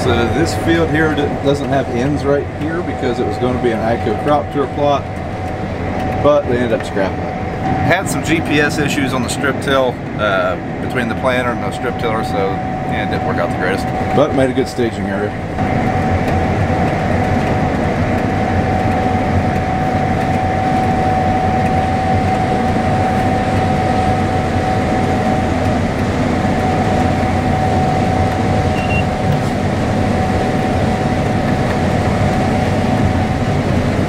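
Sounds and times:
combine harvester drone: 0:00.0 - 0:34.0
constant high whine: 0:00.0 - 0:34.0.

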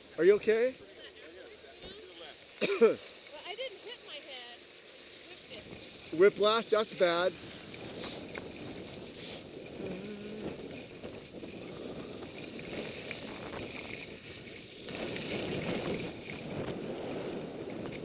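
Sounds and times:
skis scraping over snow: 0:00.1 - 0:18.0
wind rushing over microphone: 0:06.9 - 0:18.0.

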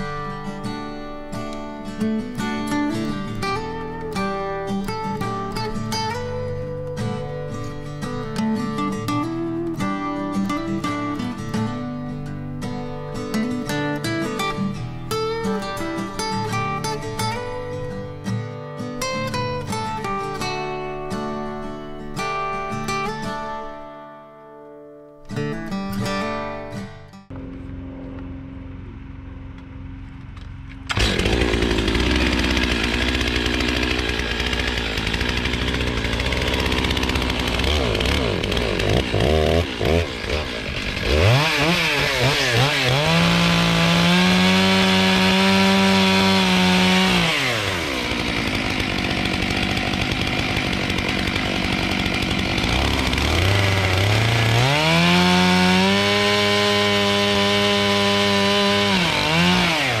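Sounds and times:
chainsaw revving and cutting log: 0:30.9 - 1:00.0.

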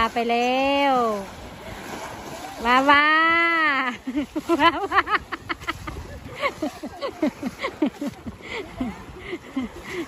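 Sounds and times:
elephants wading through water: 0:00.0 - 0:10.0.

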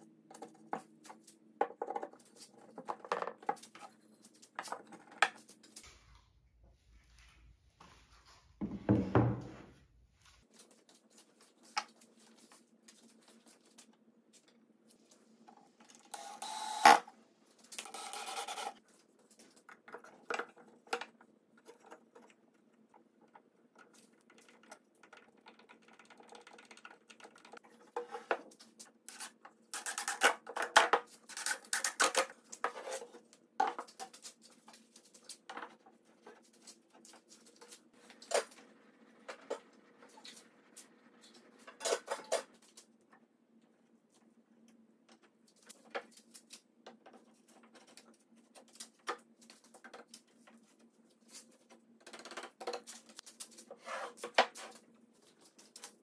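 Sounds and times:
wooden knocks and scrapes: 0:08.6 - 0:09.8.

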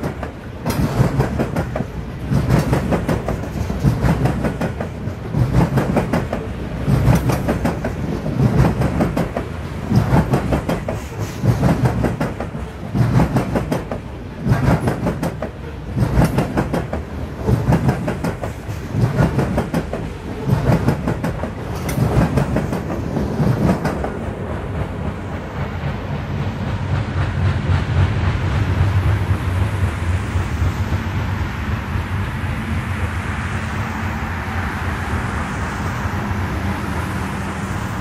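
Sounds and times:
train wheels clicking over rail joints: 0:00.0 - 0:29.6
low train rumble: 0:00.0 - 0:38.0.

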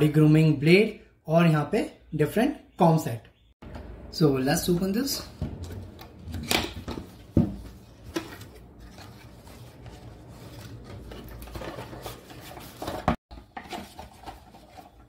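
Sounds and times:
cardboard rubbing and scraping: 0:07.0 - 0:15.0
paper rustle: 0:07.7 - 0:15.0.

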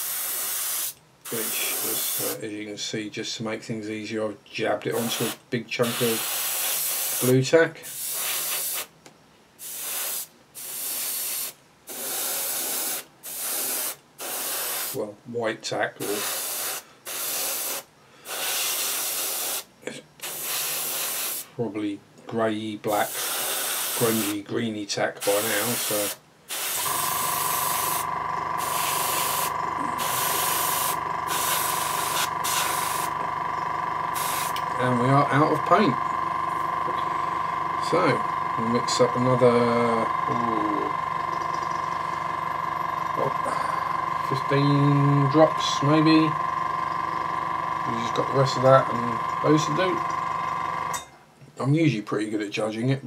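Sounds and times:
airbrush spraying hiss: 0:00.0 - 0:02.4, 0:05.0 - 0:08.9, 0:09.6 - 0:15.0, 0:16.1 - 0:21.5, 0:23.0 - 0:24.4, 0:25.2 - 0:28.0, 0:28.6 - 0:33.1, 0:34.2 - 0:34.6
compressor humming: 0:25.2 - 0:51.5.

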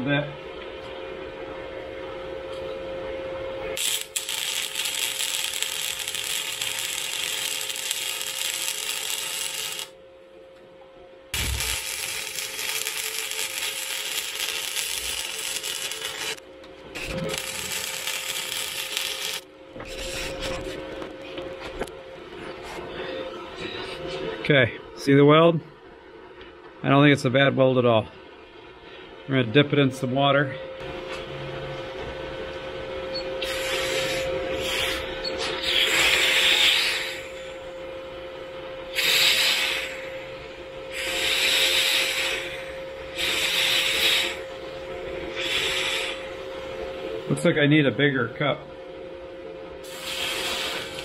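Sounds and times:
arc welding crackling hiss: 0:03.8 - 0:10.0, 0:11.4 - 0:19.5, 0:33.4 - 0:37.6, 0:38.9 - 0:44.5, 0:45.3 - 0:46.2, 0:49.8 - 0:51.0.

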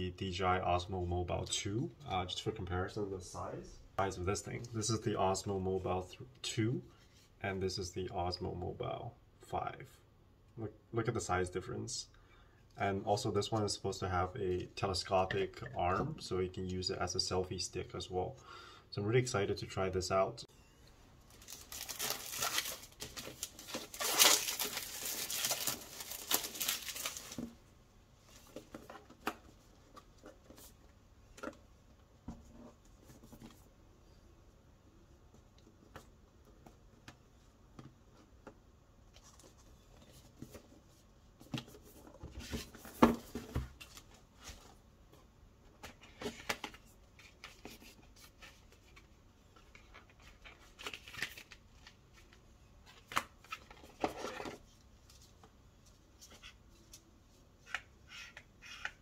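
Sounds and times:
plastic shrink-wrap tearing: 0:21.4 - 0:27.3
cardboard box rustling: 0:21.4 - 0:27.5.

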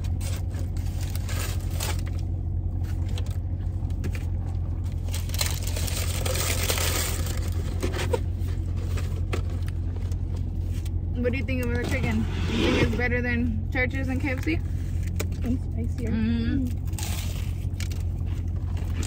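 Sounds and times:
fried chicken scraping and crinkling: 0:00.0 - 0:03.4, 0:05.0 - 0:10.9, 0:16.6 - 0:19.0
low car cabin hum: 0:00.0 - 0:19.0.

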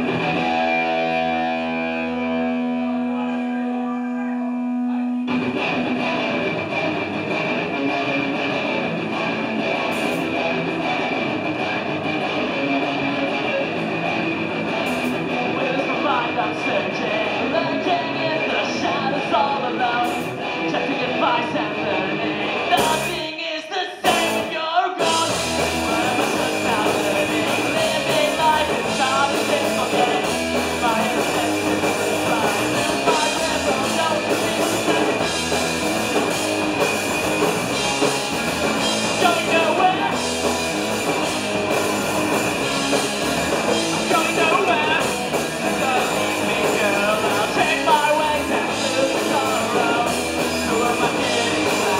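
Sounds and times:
drum kit: 0:00.0 - 0:03.4, 0:05.3 - 0:20.7, 0:22.5 - 0:23.2, 0:24.0 - 0:51.9
electric guitar: 0:00.0 - 0:51.9
person singing: 0:15.5 - 0:35.6, 0:38.9 - 0:40.5, 0:43.7 - 0:51.9.

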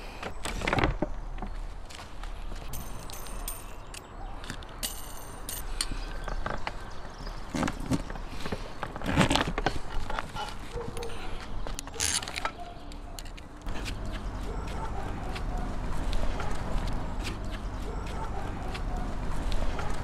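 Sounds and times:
metal spit clinking and scraping: 0:02.6 - 0:06.1, 0:11.8 - 0:14.0.

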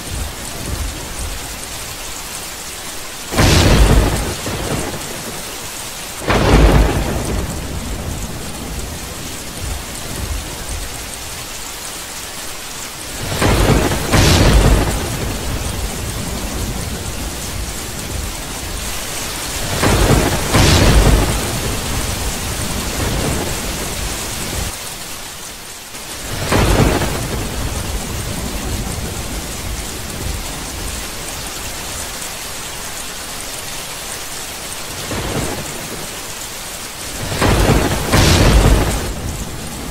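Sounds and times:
steady rain falling: 0:00.0 - 0:39.9
rolling thunder: 0:03.3 - 0:05.5, 0:06.2 - 0:11.4, 0:13.1 - 0:24.7, 0:26.3 - 0:31.2, 0:37.1 - 0:39.9.

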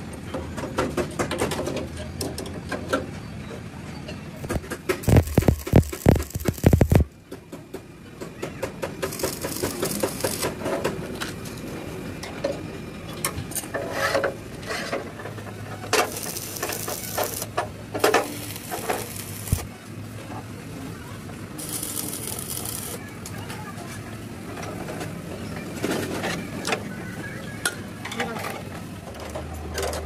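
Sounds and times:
welding arc crackling: 0:04.4 - 0:07.1, 0:09.0 - 0:10.6, 0:15.8 - 0:19.7, 0:21.6 - 0:23.3.

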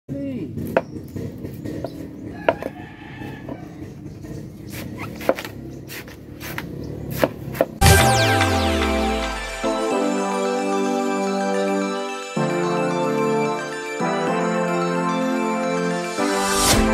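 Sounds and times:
soft cutting and scraping: 0:00.7 - 0:07.7
knife chopping on wooden board: 0:01.8 - 0:02.8, 0:04.7 - 0:07.8.

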